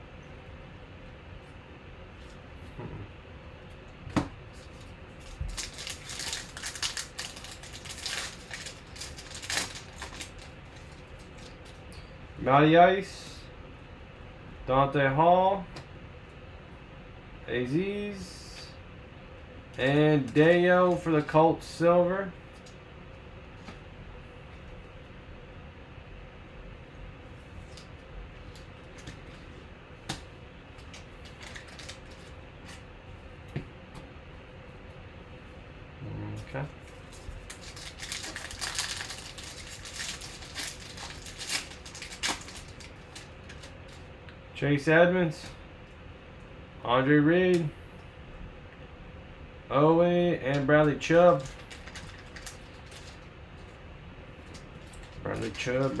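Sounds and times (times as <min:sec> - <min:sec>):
faint steady hum: 0:00.0 - 0:56.0
foil wrapper crinkling: 0:04.6 - 0:11.8, 0:30.9 - 0:32.4, 0:36.9 - 0:44.1, 0:51.3 - 0:53.3.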